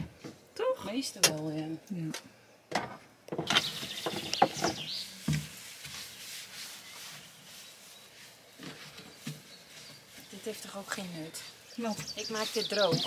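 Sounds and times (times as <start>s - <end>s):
paper towel rubbing plastic: 4.8s - 11.2s.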